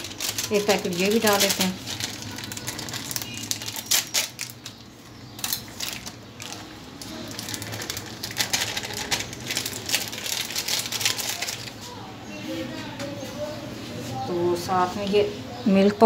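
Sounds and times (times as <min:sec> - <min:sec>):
plastic packet crinkling: 0:00.0 - 0:11.8.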